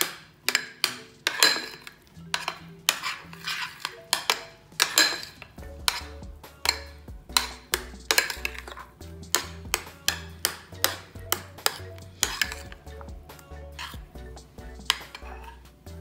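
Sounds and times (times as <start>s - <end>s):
spoon clinking and scraping glass: 0.5s - 12.8s, 13.7s - 14.0s
background music with bass: 2.0s - 16.0s.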